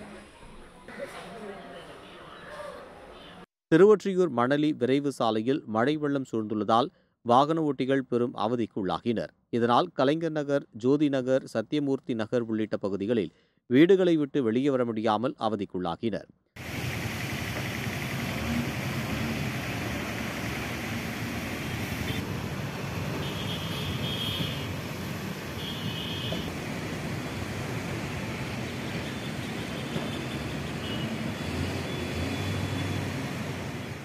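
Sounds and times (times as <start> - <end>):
constant traffic hiss: 16.6 - 34.0
vehicle engines running: 16.6 - 34.0.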